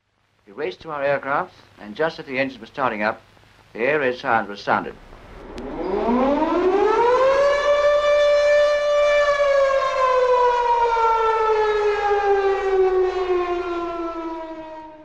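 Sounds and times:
air-raid siren wailing: 5.1 - 15.0.

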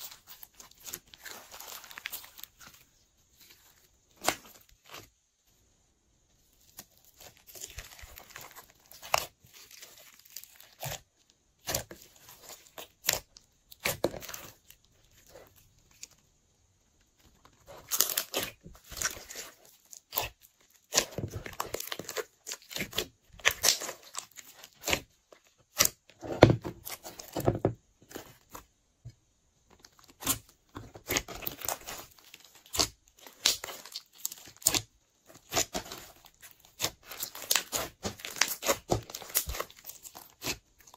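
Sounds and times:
slime crackling and popping: 6.7 - 16.2, 17.2 - 26.0, 29.8 - 40.9.

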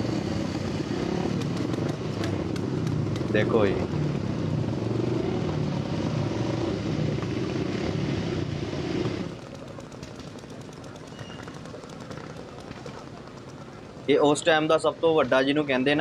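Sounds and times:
motorbike engine puttering: 0.1 - 3.6, 9.0 - 14.0.

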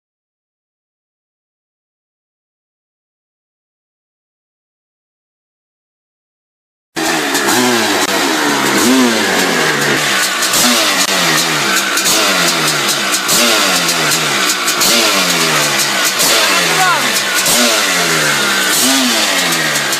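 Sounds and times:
dirt bike engine revving: 7.0 - 19.9.

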